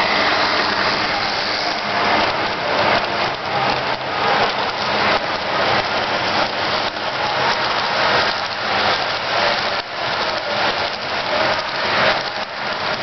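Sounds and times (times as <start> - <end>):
model train wheels rattling: 0.0 - 13.0.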